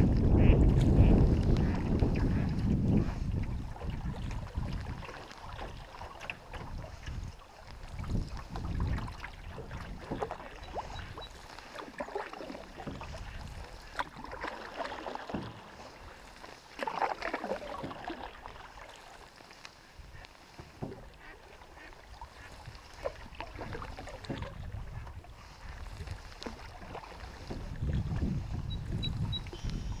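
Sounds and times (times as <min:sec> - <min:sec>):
wind rumble on microphone: 0:00.0 - 0:11.6, 0:12.8 - 0:14.5, 0:20.0 - 0:30.0
paddle splashing in water: 0:00.0 - 0:30.0
water trickling off paddle: 0:00.0 - 0:30.0.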